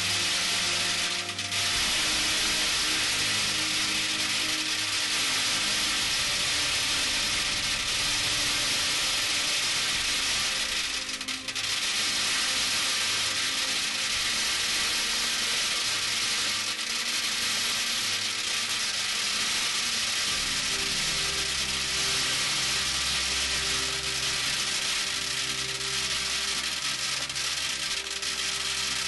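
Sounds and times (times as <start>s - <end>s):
metal bbs pouring onto tin can: 0.0s - 29.0s.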